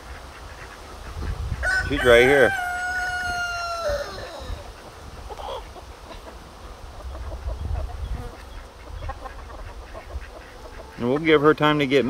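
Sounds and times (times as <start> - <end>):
rooster crowing: 1.6 - 4.7.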